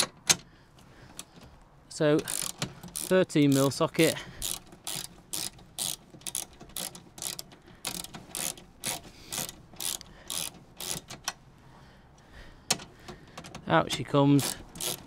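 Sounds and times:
socket ratchet clicking: 0:02.2 - 0:11.4, 0:12.7 - 0:15.0.

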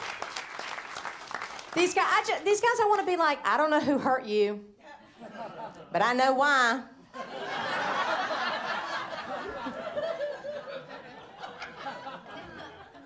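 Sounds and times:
audience laughing: 0:04.9 - 0:06.0, 0:07.1 - 0:13.0.

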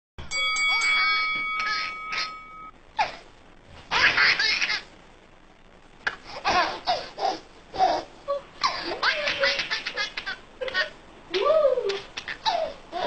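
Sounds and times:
baby laughing: 0:03.9 - 0:04.9, 0:06.4 - 0:13.0.

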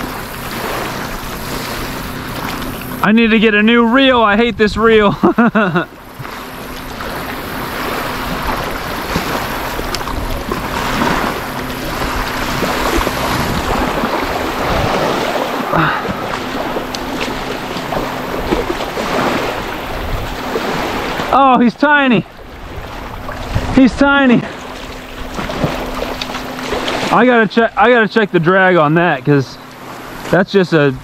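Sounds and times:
small waves washing on beach: 0:00.0 - 0:31.0
wind rushing on microphone: 0:01.5 - 0:05.3, 0:07.0 - 0:27.2.

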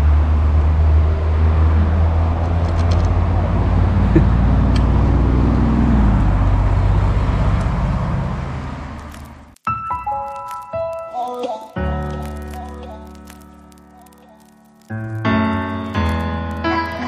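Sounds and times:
traffic engine hum: 0:00.0 - 0:09.6, 0:10.3 - 0:17.0
vehicle passing: 0:00.0 - 0:09.6.

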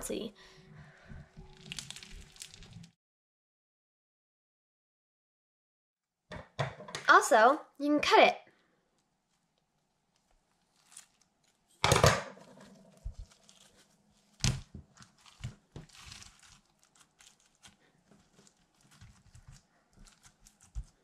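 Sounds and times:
slime crackling and squishing: 0:00.9 - 0:03.0, 0:09.1 - 0:11.8, 0:12.4 - 0:21.0.

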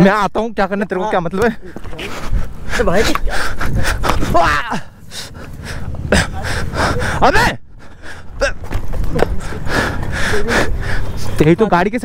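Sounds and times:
man gasping and grunting: 0:02.1 - 0:08.7, 0:09.3 - 0:11.2
wind rumble: 0:02.1 - 0:11.4.

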